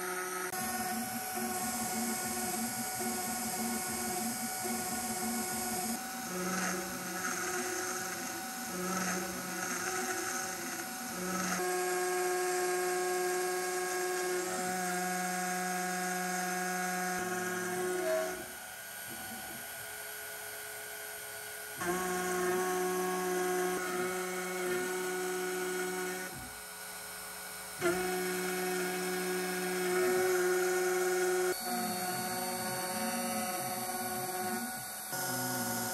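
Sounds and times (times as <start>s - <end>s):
end mill cutting aluminium: 0.0s - 19.2s, 27.5s - 35.9s
router spindle motor whine: 0.0s - 35.9s.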